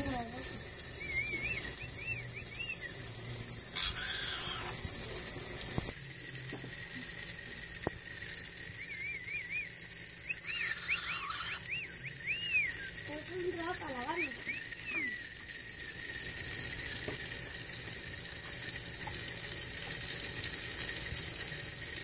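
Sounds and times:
hose spraying water on concrete: 0.0s - 22.0s
bird chirping: 0.8s - 4.8s, 8.6s - 15.4s.

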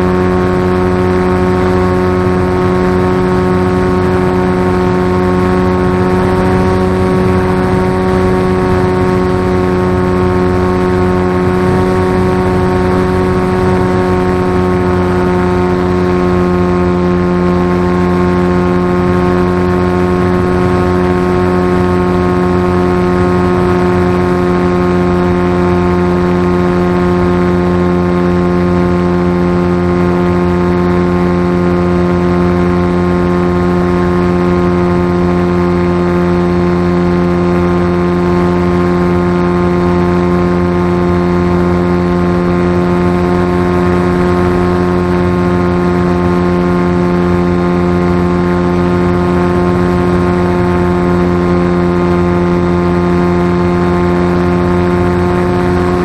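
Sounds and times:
rush of airflow: 0.0s - 27.0s
model aircraft motor droning: 0.0s - 56.0s.

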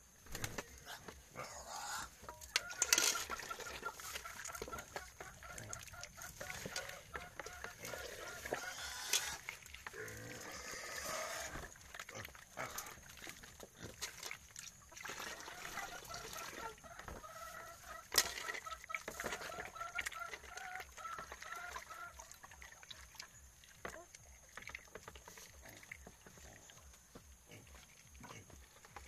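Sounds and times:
hen clucking: 0.6s - 11.6s, 14.8s - 22.8s
snail shells clicking in metal basin: 2.5s - 3.8s.

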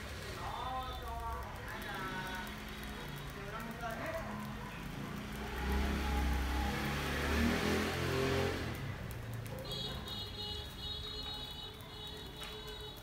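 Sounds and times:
vehicle passing by: 5.0s - 9.4s.

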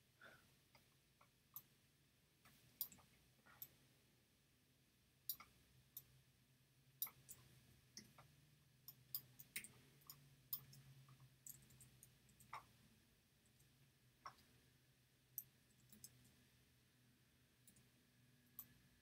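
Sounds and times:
computer mouse clicking: 2.5s - 3.8s, 7.0s - 12.7s, 15.4s - 16.4s, 17.6s - 17.9s.

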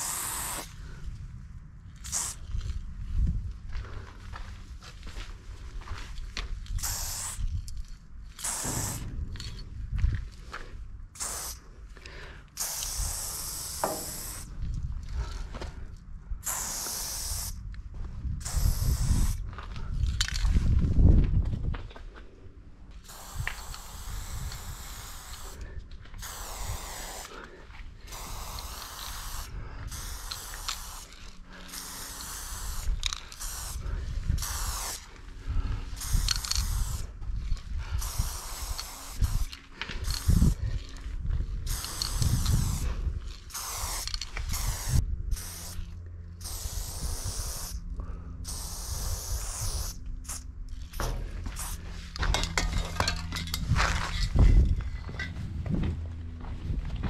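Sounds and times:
aerosol spray can hissing: 0.0s - 0.7s, 2.1s - 2.4s, 6.8s - 7.4s, 8.4s - 9.0s, 11.2s - 11.6s, 12.6s - 14.5s, 16.4s - 17.6s, 18.4s - 19.4s, 23.0s - 25.6s, 26.2s - 27.4s, 28.1s - 33.8s, 34.4s - 35.1s, 35.9s - 37.1s, 38.0s - 40.6s, 41.7s - 45.8s, 46.4s - 47.8s, 48.5s - 50.4s
low rumble: 9.0s - 12.0s, 50.0s - 57.0s.

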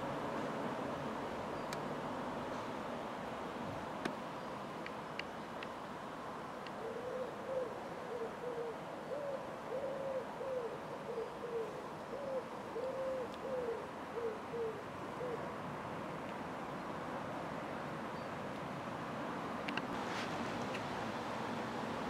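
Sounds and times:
steady background noise: 0.0s - 22.0s
pigeon cooing: 6.8s - 15.6s.

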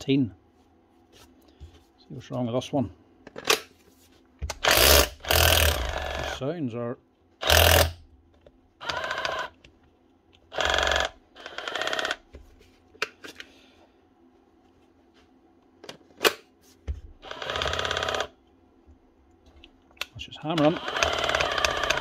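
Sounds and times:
drill motor whirring: 4.6s - 6.4s, 7.4s - 8.0s, 8.8s - 9.6s, 10.5s - 12.2s, 17.2s - 18.4s, 20.6s - 22.0s.

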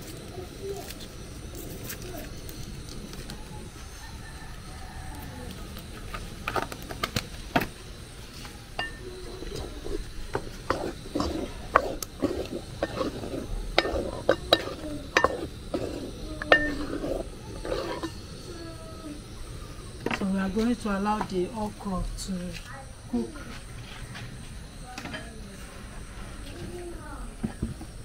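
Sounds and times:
wooden spoon scraping metal pot: 8.8s - 18.5s.

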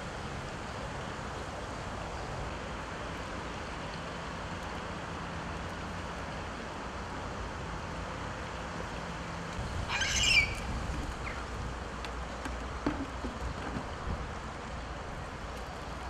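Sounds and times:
outdoor hiss: 0.0s - 16.0s
wind rumble on microphone: 9.5s - 16.0s
high-pitched squawk: 9.8s - 11.4s.

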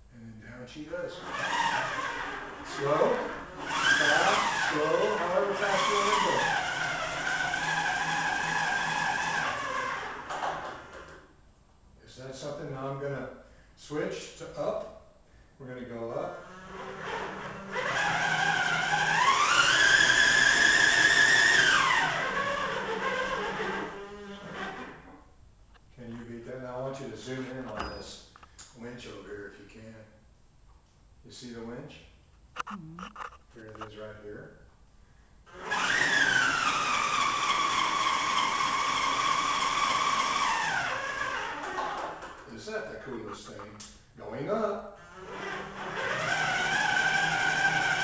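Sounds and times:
electric winch motor whine: 1.2s - 11.2s, 16.2s - 25.2s, 35.5s - 42.3s, 45.0s - 48.0s.

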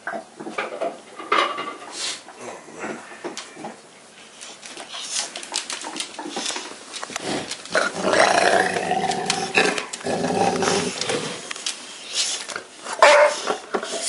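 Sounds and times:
dog growly vocalizing: 7.1s - 11.5s.

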